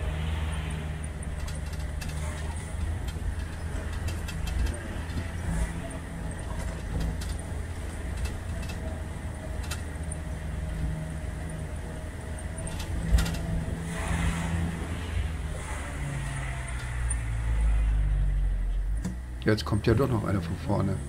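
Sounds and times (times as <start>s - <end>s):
road noise: 0.0s - 21.0s
vehicle engine running: 0.0s - 21.0s
rattling clicks: 1.0s - 11.5s, 12.3s - 13.8s.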